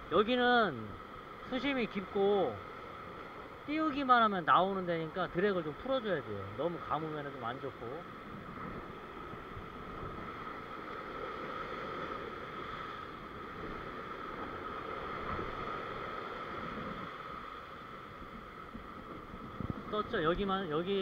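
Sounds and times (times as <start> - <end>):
surf washing over rocks: 0.0 - 21.0.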